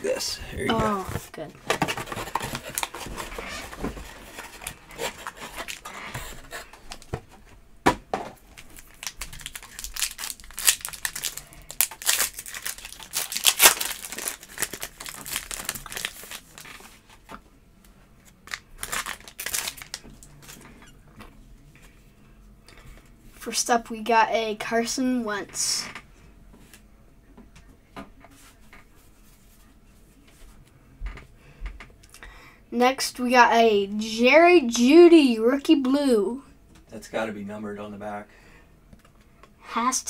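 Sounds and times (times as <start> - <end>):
foil pack tearing and crinkling: 1.8 - 6.0, 8.5 - 16.8, 18.4 - 20.0.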